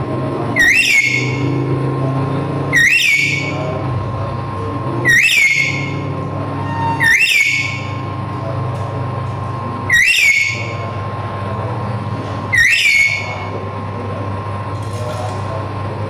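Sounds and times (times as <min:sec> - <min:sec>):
parrot whistled calls: 0:00.6 - 0:01.6, 0:02.7 - 0:03.7, 0:05.0 - 0:08.0, 0:09.9 - 0:10.9, 0:12.5 - 0:13.5.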